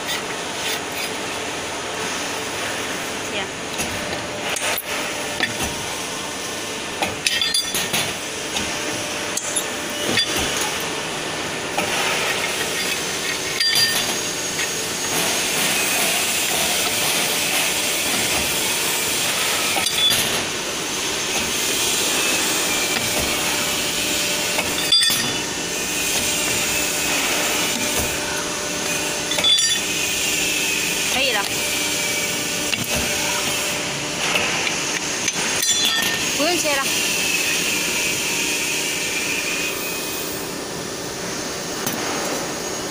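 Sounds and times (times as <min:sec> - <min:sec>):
hydraulic press running: 0:00.0 - 0:42.9
sharp metallic clanks: 0:11.8 - 0:14.3.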